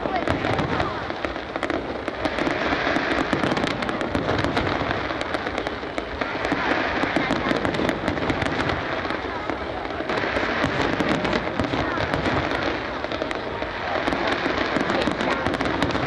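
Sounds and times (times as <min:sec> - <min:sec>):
fireworks crackling and popping: 0:00.0 - 0:16.0.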